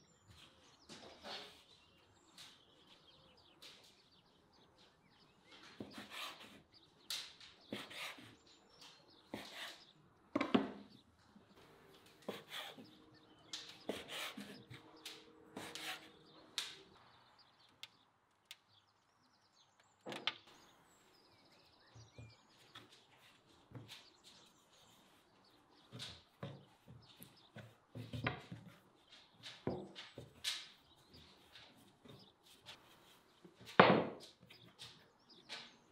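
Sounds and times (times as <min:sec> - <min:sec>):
knife chopping on wooden board: 0:12.2 - 0:12.9.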